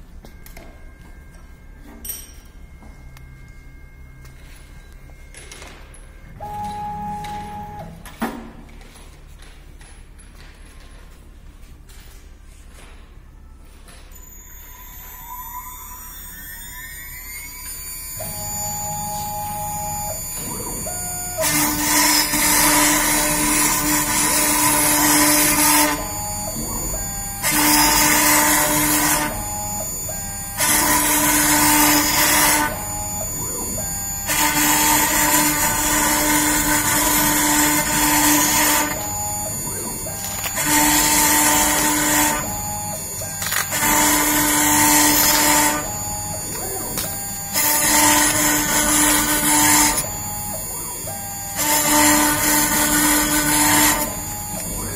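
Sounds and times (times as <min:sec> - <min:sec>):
spindle whine: 0:00.0 - 0:09.5, 0:11.9 - 0:54.9
machine humming: 0:00.0 - 0:54.9
router bit cutting: 0:17.6 - 0:54.9.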